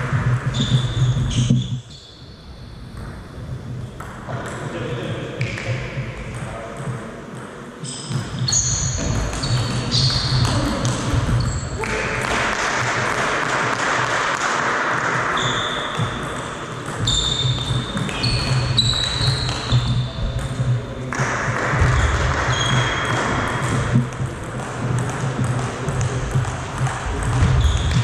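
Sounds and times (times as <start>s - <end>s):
shoes squeaking: 0.1s - 2.1s, 7.8s - 12.3s, 15.3s - 21.1s, 21.8s - 28.0s.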